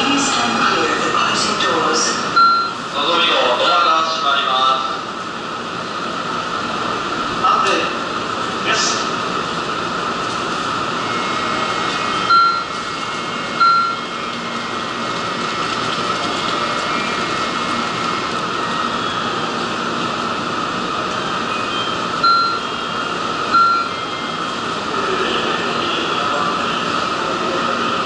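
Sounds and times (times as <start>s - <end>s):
train platform hum: 0.0s - 28.0s
short electronic beeps: 2.4s - 2.8s, 12.2s - 12.7s, 13.6s - 14.0s, 21.5s - 22.8s, 23.5s - 24.1s.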